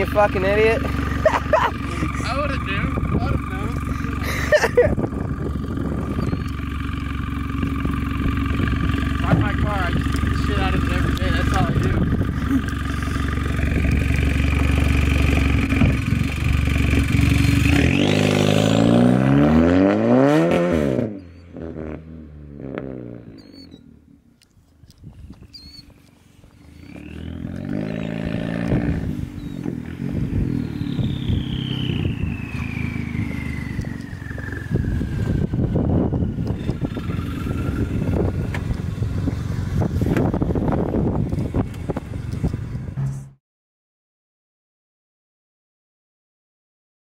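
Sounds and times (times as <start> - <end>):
straight-piped car engine revving: 7.5 - 23.5, 26.8 - 43.4.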